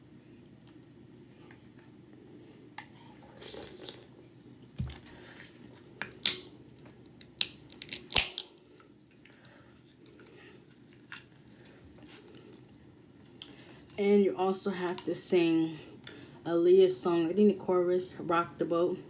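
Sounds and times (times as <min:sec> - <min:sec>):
person sipping and swallowing: 0:03.2 - 0:04.1.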